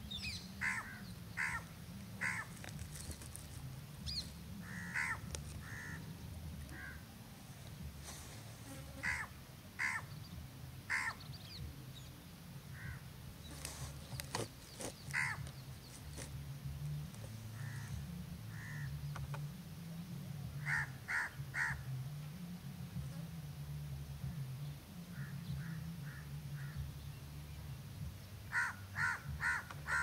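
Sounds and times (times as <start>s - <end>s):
crow cawing: 0.6s - 2.5s, 4.6s - 6.0s, 6.7s - 7.0s, 9.0s - 10.1s, 10.9s - 11.2s, 12.8s - 13.0s, 15.1s - 15.4s, 18.5s - 18.9s, 20.6s - 21.8s, 28.5s - 30.0s.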